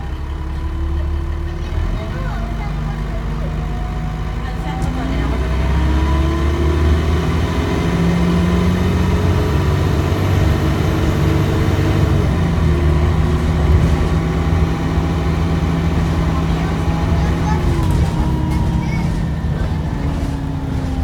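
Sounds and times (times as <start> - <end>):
bus diesel engine accelerating: 0.0 - 21.0.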